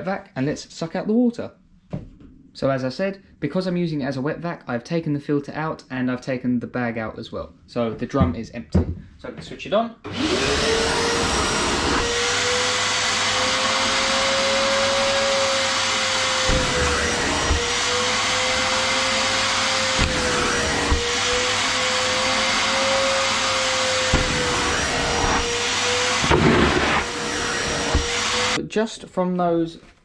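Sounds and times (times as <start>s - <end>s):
wet vacuum motor whine: 10.1s - 28.6s.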